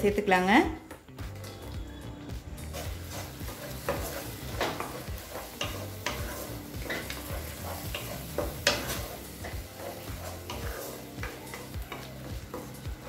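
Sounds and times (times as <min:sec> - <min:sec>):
paste sizzling in oil: 0:02.6 - 0:13.0
spatula scraping and knocking pan: 0:02.6 - 0:13.0.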